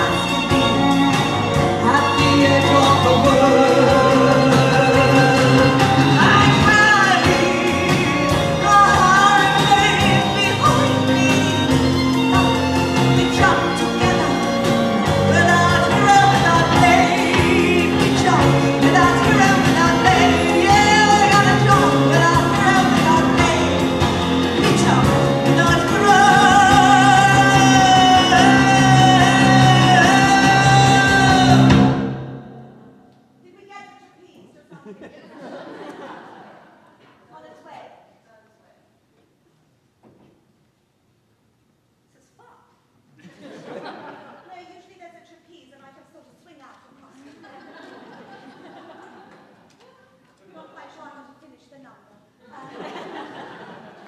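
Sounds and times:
live band playing: 0.0s - 33.4s
woman singing into microphone: 1.8s - 11.6s, 15.3s - 31.7s.

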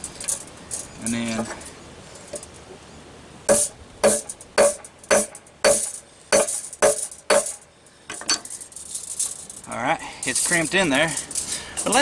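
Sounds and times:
hammer blows on metal: 3.5s - 8.5s.

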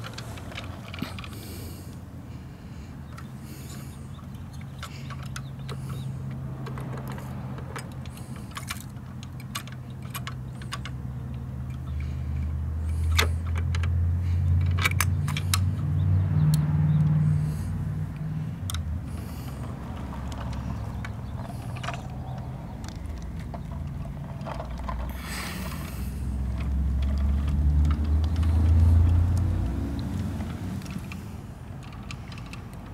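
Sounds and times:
plastic and diecast parts clicking: 19.8s - 32.9s.

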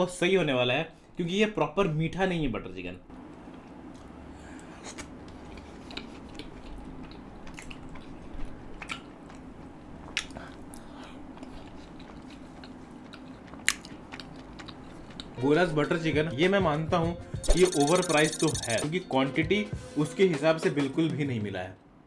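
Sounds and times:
person chewing food: 3.5s - 15.4s
lip smacks and mouth clicks: 4.8s - 15.4s.

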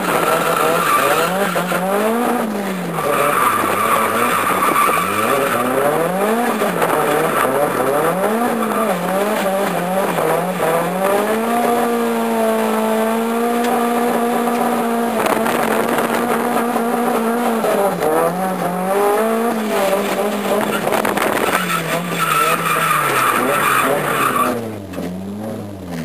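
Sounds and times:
car engine revving: 0.0s - 26.0s
tyres squealing: 2.9s - 10.2s, 19.8s - 24.7s.

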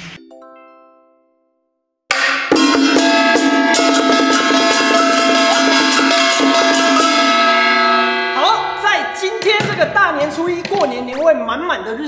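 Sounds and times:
festive music with drums and cymbals: 2.1s - 10.6s.

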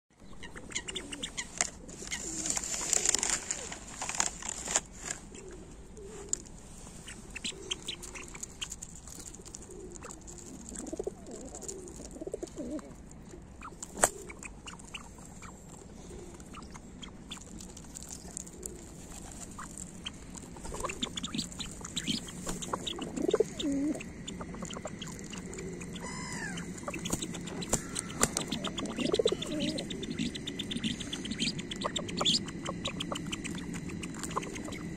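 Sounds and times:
pigeons cooing: 0.4s - 3.7s, 5.3s - 6.6s, 7.4s - 17.6s, 18.2s - 34.9s.

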